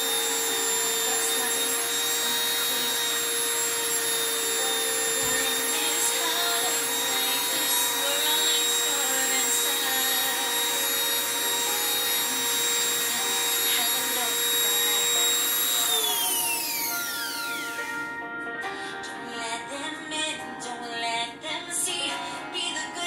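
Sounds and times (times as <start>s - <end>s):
rotary tool drilling glass: 0.0s - 18.0s.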